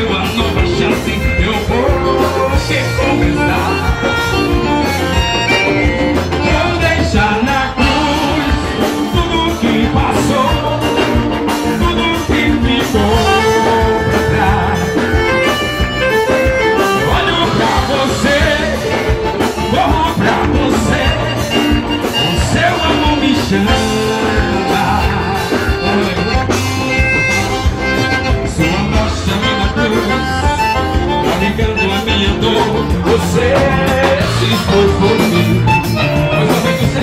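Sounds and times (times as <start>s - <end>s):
gospel band playing: 0.0s - 37.0s
people singing: 6.2s - 15.6s, 16.8s - 26.9s, 28.5s - 37.0s.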